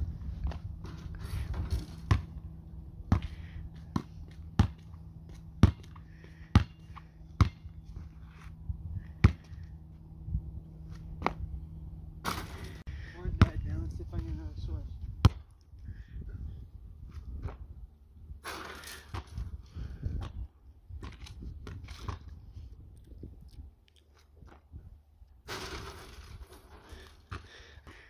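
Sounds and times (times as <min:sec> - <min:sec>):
basketball bouncing on asphalt: 0:00.4 - 0:10.0, 0:11.2 - 0:11.5, 0:13.4 - 0:13.6, 0:15.2 - 0:15.6, 0:27.2 - 0:28.0.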